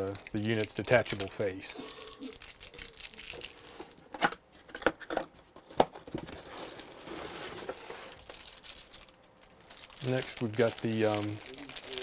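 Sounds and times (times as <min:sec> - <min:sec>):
cardboard packaging rustling: 0:06.2 - 0:12.0.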